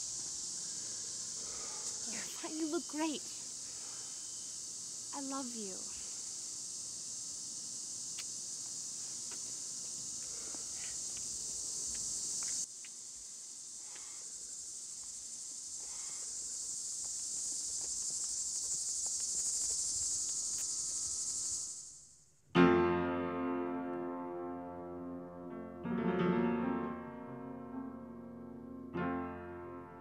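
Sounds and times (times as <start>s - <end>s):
crickets chirping: 0.0s - 22.5s
piano chord: 22.5s - 30.0s.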